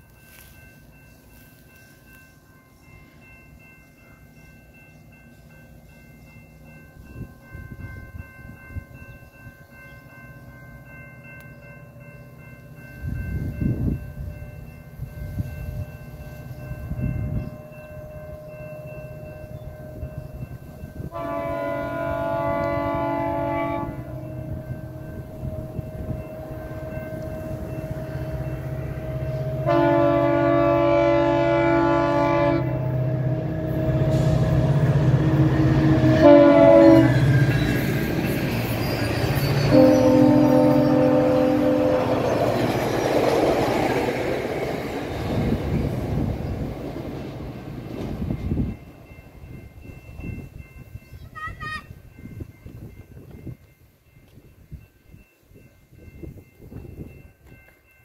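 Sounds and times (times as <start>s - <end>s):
diesel locomotive engine rumbling: 0.0s - 58.0s
wind gusts on microphone: 13.0s - 29.3s, 40.9s - 57.6s
locomotive air horn: 21.1s - 24.3s, 29.0s - 34.7s, 35.4s - 37.3s, 39.6s - 42.3s.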